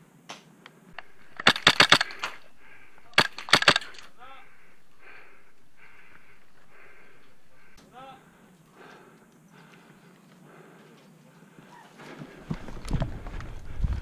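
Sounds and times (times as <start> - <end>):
airsoft gun firing bursts: 1.0 - 7.7.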